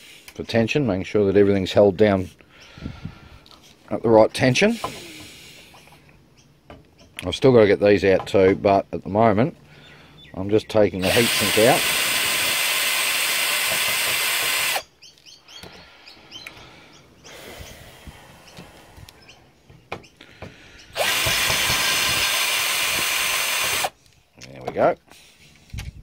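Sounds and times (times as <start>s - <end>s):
power driver whirring: 11.0s - 14.8s, 20.9s - 24.0s.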